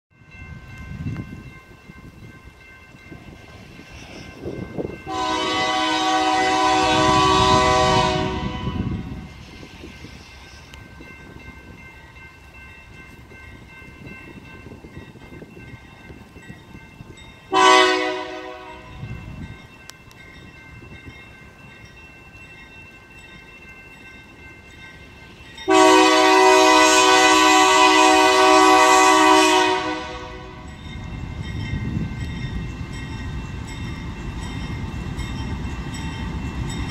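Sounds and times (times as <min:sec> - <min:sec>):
locomotive air horn blasts: 0:05.1 - 0:09.3, 0:17.5 - 0:19.0, 0:25.7 - 0:30.6.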